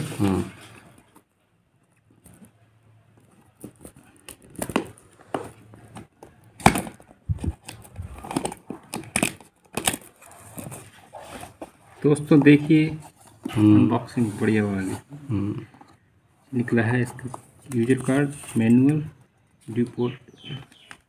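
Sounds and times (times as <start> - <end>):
plastic wrap crinkling and tearing: 6.7 - 11.0.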